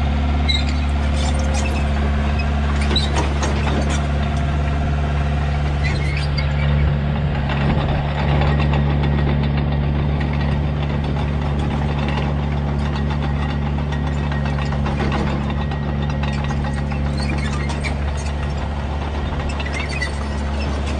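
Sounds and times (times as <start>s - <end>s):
bulldozer diesel engine running: 0.0s - 20.9s
steel tracks clattering: 6.4s - 20.9s.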